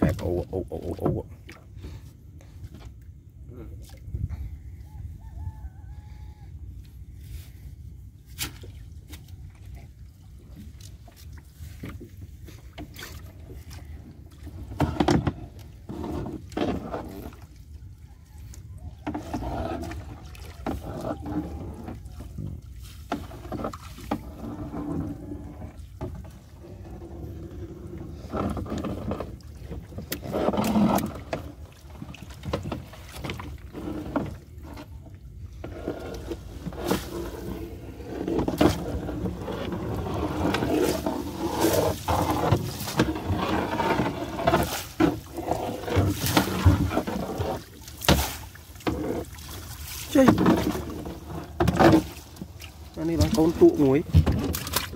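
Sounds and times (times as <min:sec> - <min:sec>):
water splashing and dripping: 0:12.6 - 0:24.6, 0:36.1 - 0:54.9.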